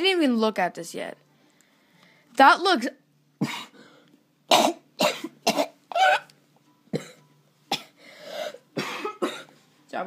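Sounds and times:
boy coughing: 0:03.4 - 0:03.8, 0:04.5 - 0:06.3, 0:06.9 - 0:09.6.

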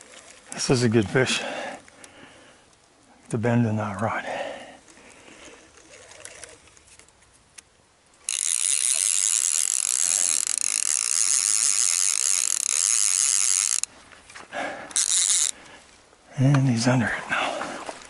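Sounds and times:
fishing reel drag ratcheting: 0:05.4 - 0:07.1, 0:08.2 - 0:13.9, 0:14.9 - 0:15.6.

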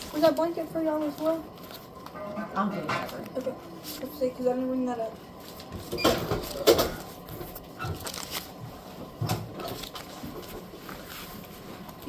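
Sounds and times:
paper bills rustling: 0:00.0 - 0:02.2, 0:05.4 - 0:12.0.

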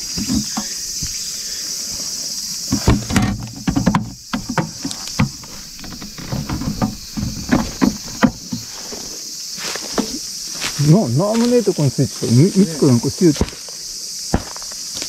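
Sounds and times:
night insects chirring: 0:00.0 - 0:15.0
handling clicks and knocks: 0:02.7 - 0:08.8.

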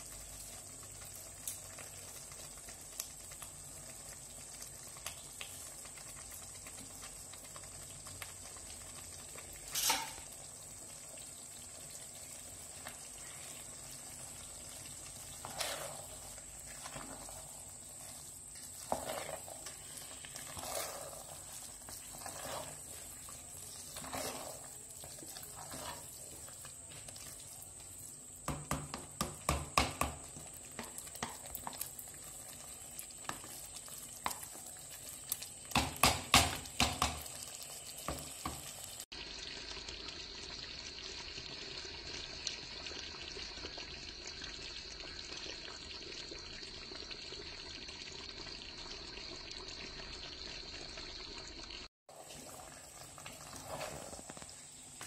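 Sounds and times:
faint sizzle: 0:00.0 - 0:55.0
spoon scraping cooking pot: 0:09.7 - 0:10.3, 0:15.2 - 0:27.3, 0:53.2 - 0:54.5
knocks on pot: 0:28.5 - 0:30.2.

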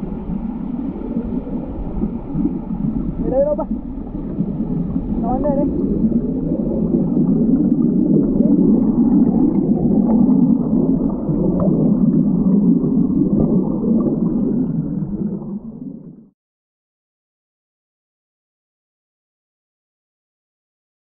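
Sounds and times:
waterfall heard underwater: 0:00.0 - 0:16.4.

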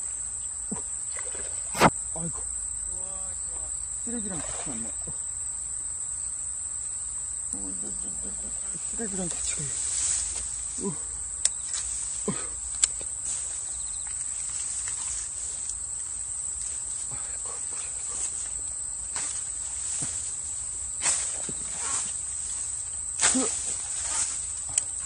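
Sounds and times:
insects chirring: 0:00.0 - 0:25.0
reeds rustling: 0:08.2 - 0:25.0.

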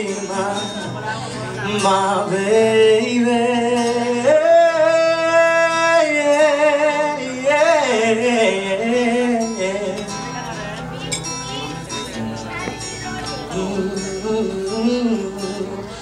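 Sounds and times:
acoustic guitar: 0:00.0 - 0:16.0.

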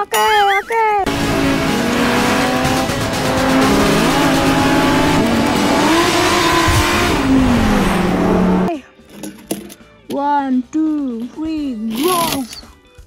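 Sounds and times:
race car engines revving: 0:01.0 - 0:08.7.

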